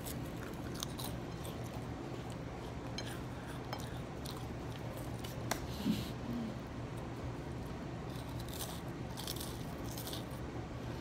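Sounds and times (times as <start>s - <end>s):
chewing crunchy cracker: 0.0s - 5.5s, 8.0s - 10.4s
low hummed vocal sound: 0.0s - 11.0s
low room hum: 0.0s - 11.0s.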